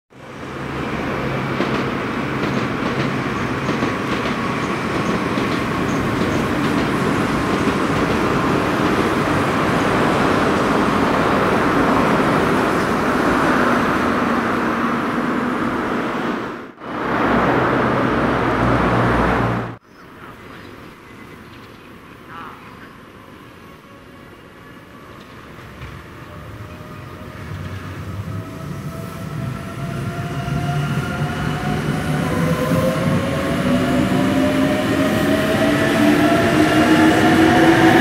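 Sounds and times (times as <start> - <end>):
train wheels rumbling on steel bridge: 0.3 - 19.8, 25.0 - 38.0.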